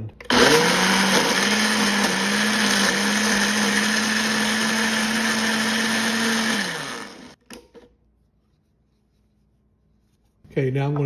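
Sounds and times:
blender motor running: 0:00.3 - 0:07.4.

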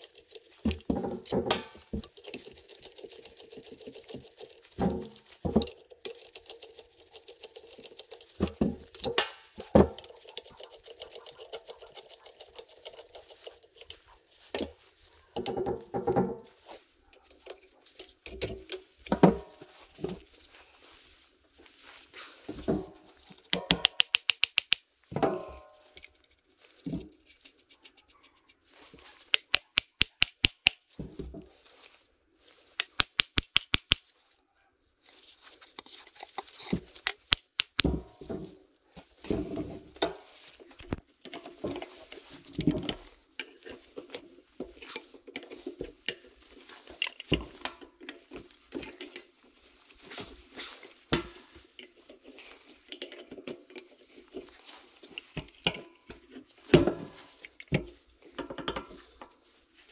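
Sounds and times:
sharp clicks: 0:23.6 - 0:24.9, 0:29.3 - 0:30.8, 0:32.8 - 0:34.0, 0:37.1 - 0:37.9
metal tools clinking: 0:41.2 - 0:57.9.

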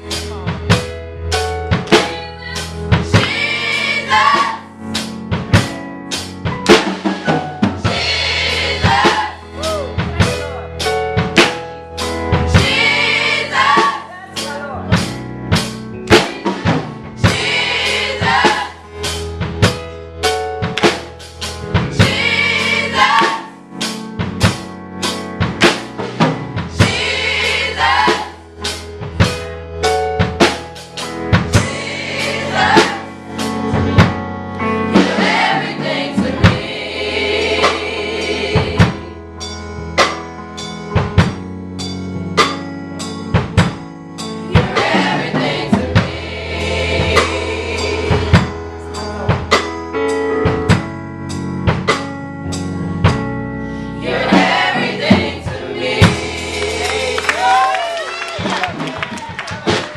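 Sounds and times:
steady percussive beat: 0:00.0 - 0:34.3, 0:34.9 - 0:49.8, 0:54.1 - 0:59.9
gospel choir singing: 0:01.9 - 0:05.1, 0:07.0 - 0:10.3, 0:12.2 - 0:14.4, 0:16.0 - 0:19.7, 0:21.8 - 0:24.0, 0:26.0 - 0:29.3, 0:31.3 - 0:39.4, 0:44.4 - 0:49.7, 0:53.7 - 0:58.0.

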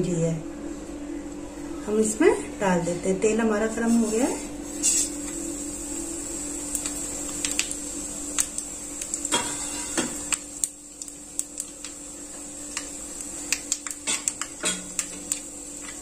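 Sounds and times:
steady hum: 0:00.0 - 0:16.0
seeds crackling in hot oil: 0:03.9 - 0:16.0.

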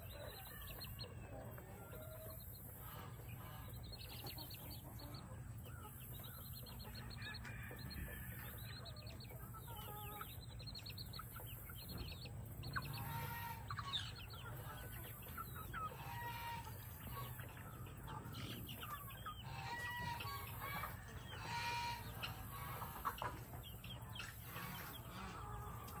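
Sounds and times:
chicks peeping: 0:00.0 - 0:26.0
hen clucking: 0:00.0 - 0:26.0.

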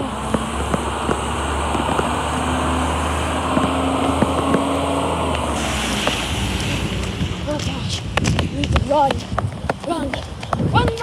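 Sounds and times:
garbage truck engine driving past: 0:00.0 - 0:07.5.

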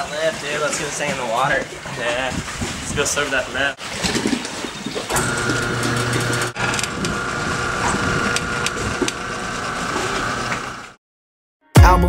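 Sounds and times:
cables and frame creaking: 0:05.1 - 0:11.0
electric motor whine: 0:05.1 - 0:11.0.

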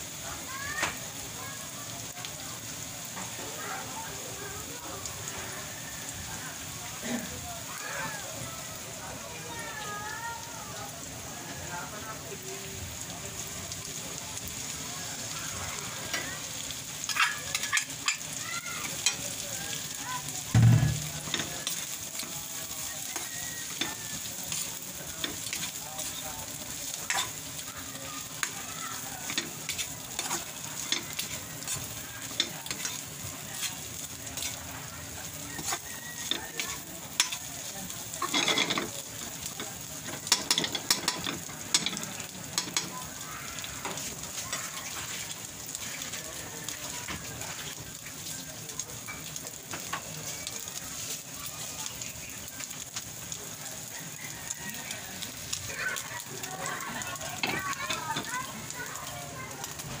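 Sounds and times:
food sizzling in hot oil: 0:00.0 - 1:00.0
heavy knock: 0:20.6 - 0:21.2
spatula scraping pan: 0:23.1 - 0:26.2, 0:29.2 - 0:33.8, 0:35.6 - 0:37.4.

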